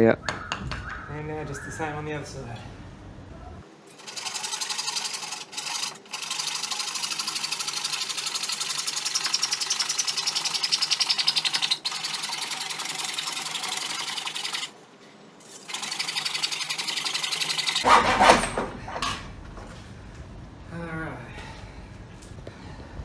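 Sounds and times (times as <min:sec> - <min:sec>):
handsaw cutting wood: 0:15.8 - 0:18.6.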